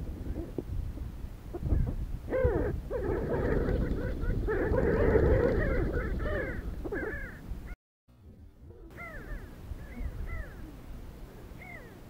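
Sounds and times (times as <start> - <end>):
flock of birds calling: 1.5 - 7.8, 8.8 - 12.0.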